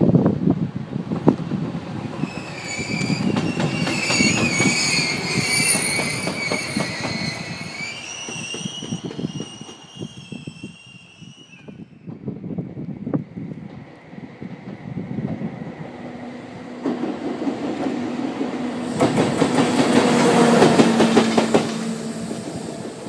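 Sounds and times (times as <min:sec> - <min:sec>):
train wheels clicking over rail joints: 0:01.2 - 0:10.0, 0:16.7 - 0:23.0.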